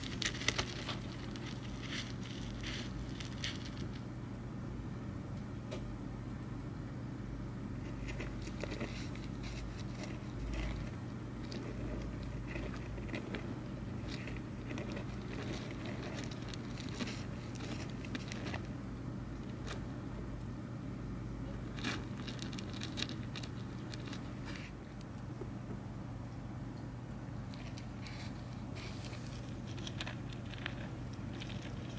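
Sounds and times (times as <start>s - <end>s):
soil crackling and rustling: 0.0s - 4.1s, 7.8s - 19.9s, 21.6s - 24.8s, 27.5s - 31.9s
steady low hum: 0.0s - 31.9s.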